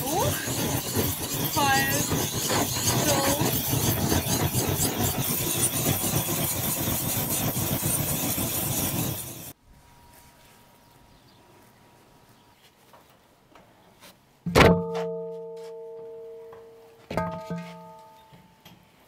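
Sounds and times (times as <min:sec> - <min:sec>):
gas torch flame hissing: 0:00.0 - 0:09.6.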